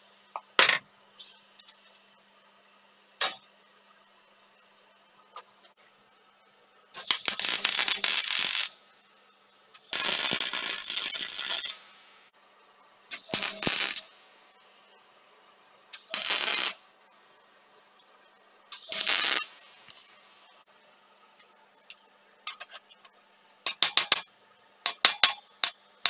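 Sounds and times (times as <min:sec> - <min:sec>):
welder arc crackling: 0:07.0 - 0:08.8, 0:09.8 - 0:12.3, 0:13.1 - 0:14.6, 0:15.9 - 0:17.1, 0:18.7 - 0:20.6.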